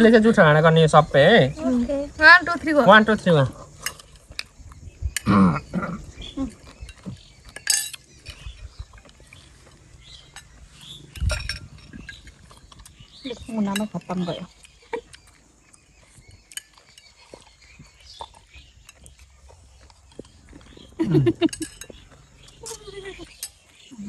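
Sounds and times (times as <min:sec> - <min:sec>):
utensils clinking against dishes: 0:06.6 - 0:09.1, 0:10.2 - 0:13.0, 0:16.5 - 0:19.3, 0:21.2 - 0:23.9.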